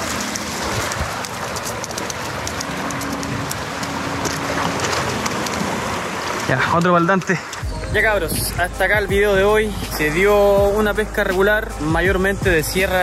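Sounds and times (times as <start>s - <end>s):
crackle of foam and spray: 0.0s - 7.6s
sea surf washing over rocks: 0.0s - 8.7s.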